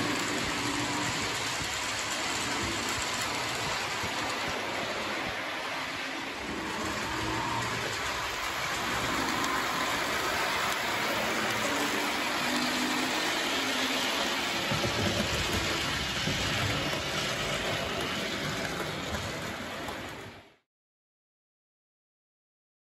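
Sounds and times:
model train running hiss: 0.0 - 20.3.

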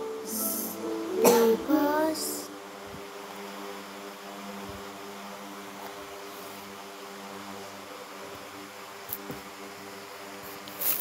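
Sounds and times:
soft hiss: 0.0 - 7.6, 10.4 - 11.0
low machine hum: 0.0 - 10.6.

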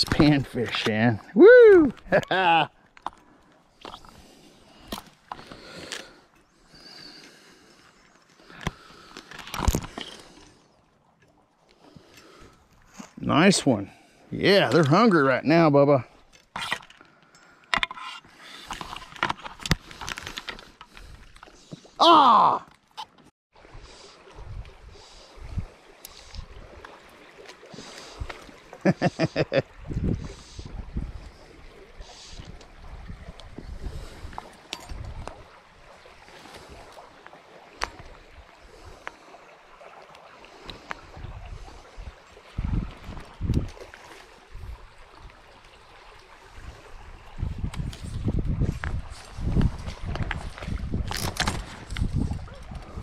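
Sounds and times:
shallow creek rushing: 3.7 - 19.3, 23.5 - 53.0
fishing gear clicks and taps: 16.3 - 21.9, 48.7 - 52.8
wind buffeting microphone: 29.7 - 31.8, 32.4 - 36.0, 41.0 - 43.8, 44.5 - 53.0.

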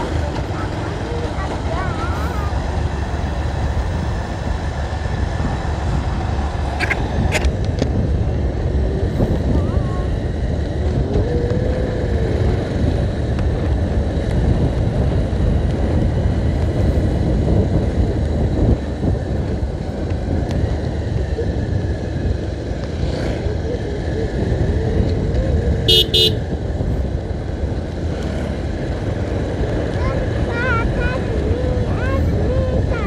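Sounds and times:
vehicle engine and road rumble: 0.0 - 33.0
car horn beeps: 25.9 - 26.4.

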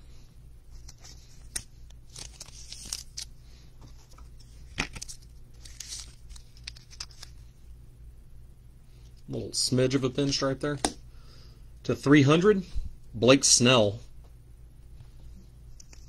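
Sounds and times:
card rustling and clicking: 0.7 - 7.5.

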